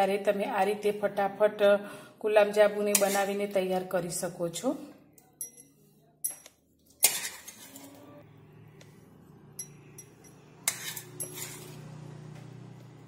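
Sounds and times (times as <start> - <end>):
metal spoon clinking on dishes: 5.2 - 7.7, 9.6 - 11.8.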